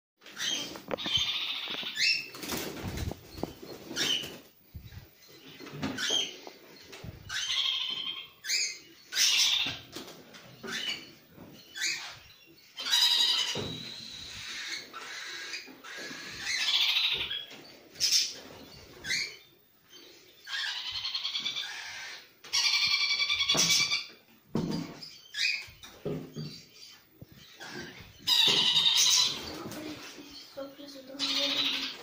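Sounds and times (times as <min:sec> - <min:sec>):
young parrots squeaky begging calls: 0:00.3 - 0:02.3, 0:07.3 - 0:09.9, 0:10.6 - 0:24.1, 0:26.5 - 0:30.5, 0:31.1 - 0:32.0
wings flapping: 0:00.7 - 0:04.5.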